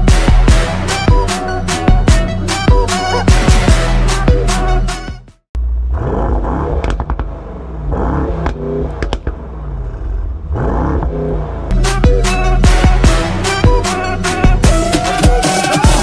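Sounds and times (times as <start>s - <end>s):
exhaust cracks: 5.5s - 11.7s
car engine revving: 5.6s - 16.0s.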